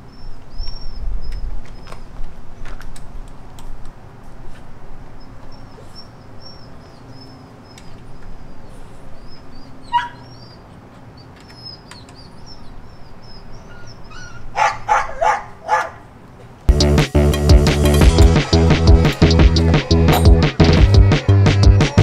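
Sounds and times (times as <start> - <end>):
dog barking: 9.9 - 10.3, 14.5 - 16.0.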